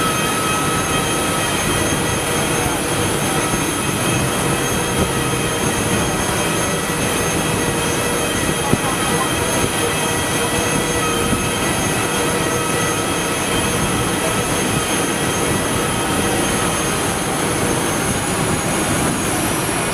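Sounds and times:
aircraft turbine whine: 0.0 - 19.9.

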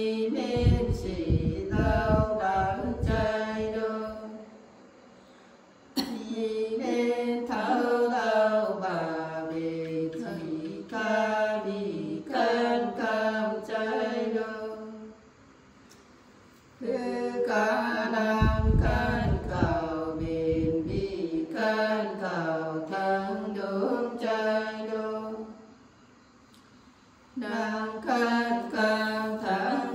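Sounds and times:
women singing unaccompanied: 0.0 - 4.6, 6.0 - 15.2, 16.8 - 25.7, 27.4 - 29.9
low rumble: 0.5 - 3.3, 18.4 - 21.2.

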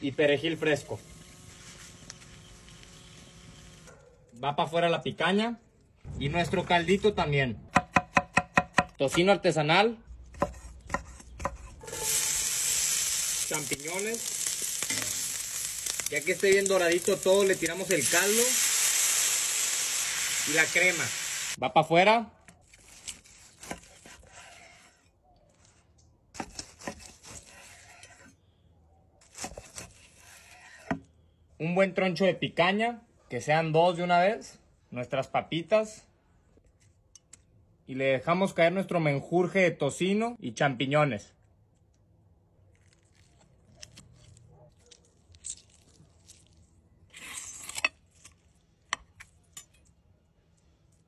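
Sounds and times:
knife slicing meat: 22.6 - 25.0, 26.4 - 28.3, 29.2 - 31.0
fork crunching crisp potato: 42.6 - 50.0.

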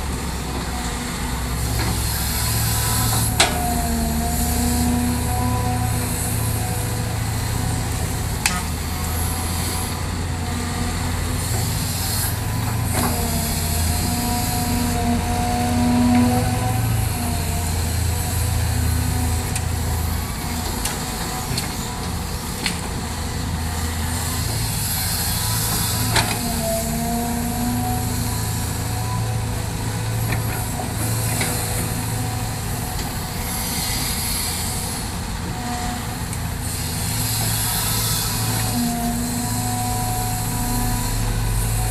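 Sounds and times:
diesel engine under load: 0.0 - 41.9
hydraulic whine: 0.0 - 41.9.

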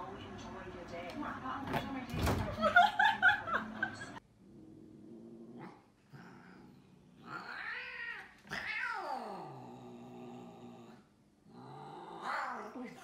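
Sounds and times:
cats growling: 4.4 - 13.0.

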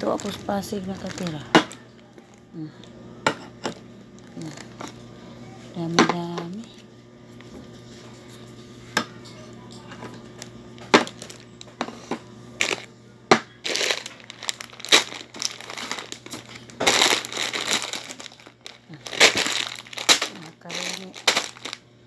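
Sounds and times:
plastic packaging crinkling: 0.0 - 2.4, 11.0 - 11.7, 12.6 - 12.9, 13.6 - 21.8.

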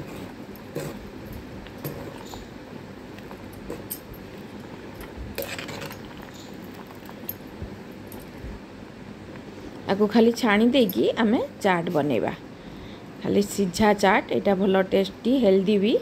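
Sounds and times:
water boiling in a pot: 0.0 - 7.3.

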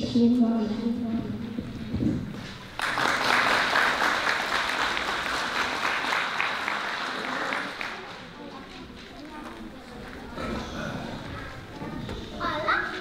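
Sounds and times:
audience applauding: 2.7 - 8.4.

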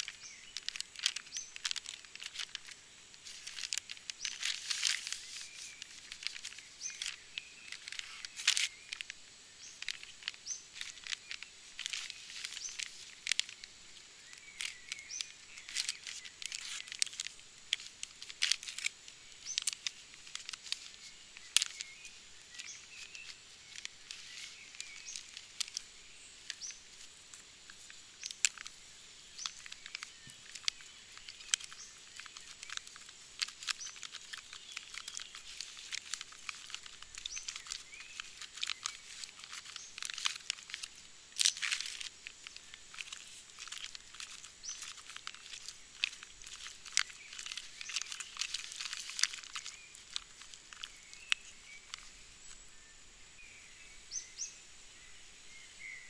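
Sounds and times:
plastic and foil packets crinkling: 0.0 - 53.5.

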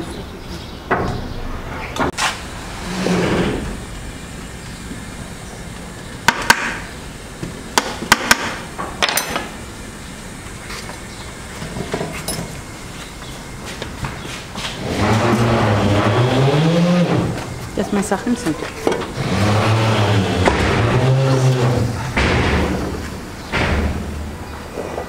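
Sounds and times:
sharp knocks: 7.8 - 9.5, 20.3 - 24.4.

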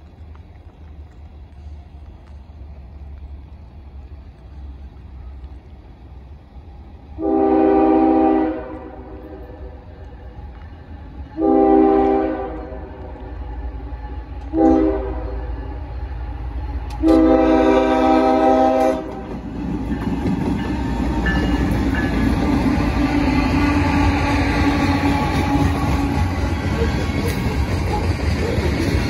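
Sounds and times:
train engines and wheels on rails: 0.0 - 29.0
locomotive air horn: 7.2 - 9.8, 11.4 - 13.2, 14.4 - 15.8, 16.9 - 19.3, 22.7 - 26.4.

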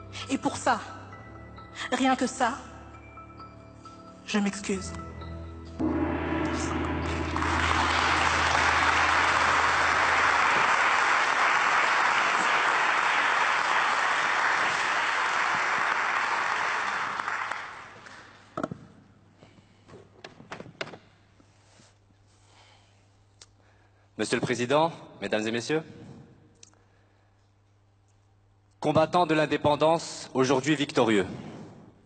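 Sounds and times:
low held musical tone: 1.2 - 11.3
audience applauding: 7.0 - 18.3.

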